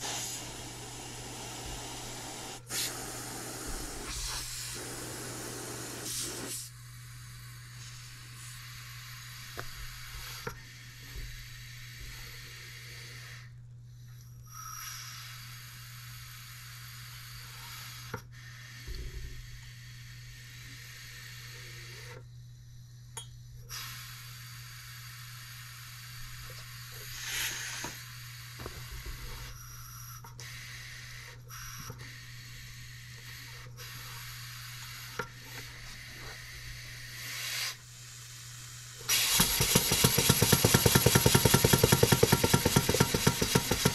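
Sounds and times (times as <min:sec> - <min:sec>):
compressed air hissing: 0:00.0 - 0:13.5, 0:14.5 - 0:18.8, 0:23.7 - 0:43.9
steam engine exhaust beats: 0:00.0 - 0:13.5, 0:23.7 - 0:43.9
engine parts clicking and rubbing: 0:39.1 - 0:43.9.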